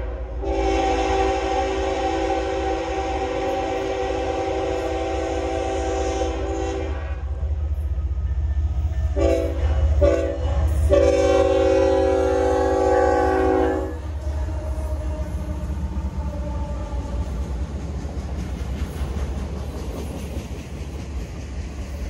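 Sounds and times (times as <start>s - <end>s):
locomotive air horn blasts: 0.0s - 7.3s, 9.1s - 15.4s
low rumble of approaching train: 0.0s - 22.0s.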